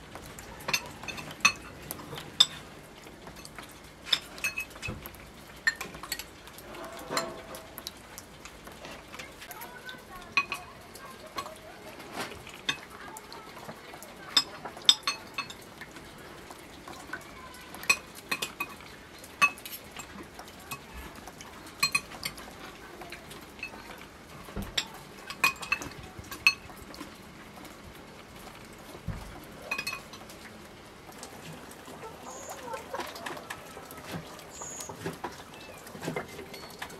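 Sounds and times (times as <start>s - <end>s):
cutlery clinking on plates: 0.6s - 2.6s, 5.7s - 7.8s, 21.8s - 22.4s, 24.7s - 26.7s.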